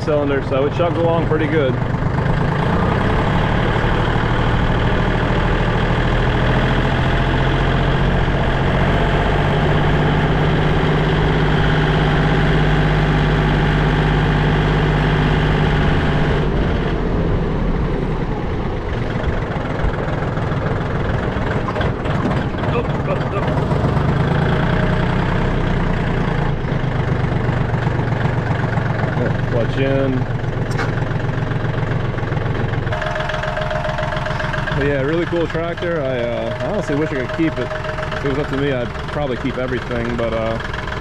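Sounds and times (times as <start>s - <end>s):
diesel tractor engine chugging: 0.0s - 41.0s.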